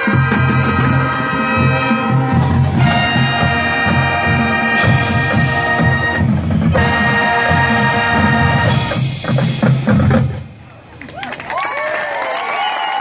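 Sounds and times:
brass chords: 0:00.0 - 0:10.6
low bass part: 0:00.2 - 0:10.2.

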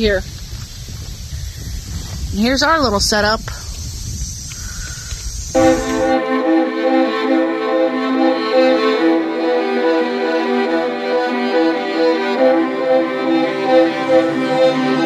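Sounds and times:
violin-led string melody: 0:05.6 - 0:15.0.

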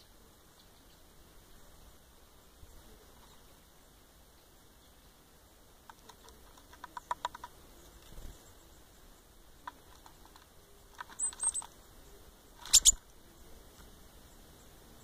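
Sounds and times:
beaks tapping on oats and plastic: 0:05.9 - 0:08.1, 0:09.6 - 0:11.7, 0:12.6 - 0:13.0.

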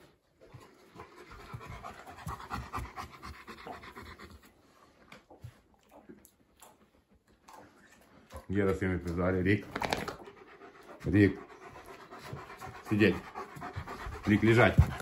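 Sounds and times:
dog panting rapidly: 0:00.0 - 0:04.8, 0:10.1 - 0:15.0.

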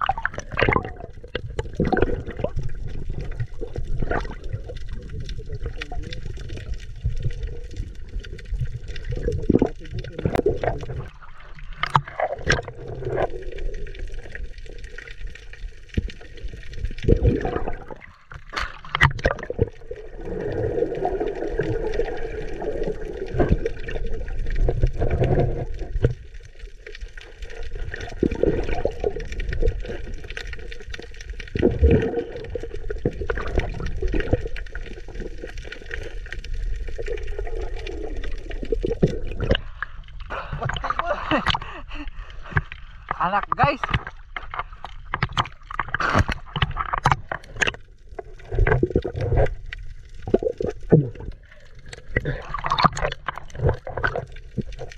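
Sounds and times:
air bubbling underwater: 0:00.0 - 0:14.7, 0:16.4 - 0:26.2, 0:27.7 - 0:30.8, 0:31.5 - 0:41.7, 0:45.1 - 0:54.9
underwater water churning: 0:00.0 - 0:54.9
sharp clicks and knocks: 0:43.5 - 0:47.8.

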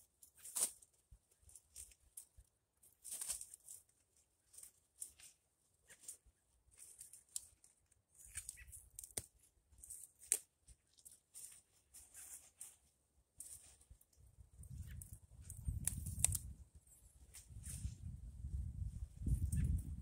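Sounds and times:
leaves snapped off stalks: 0:00.4 - 0:00.8, 0:08.3 - 0:11.6, 0:14.6 - 0:16.6
crisp leaf rustling: 0:03.0 - 0:16.6.

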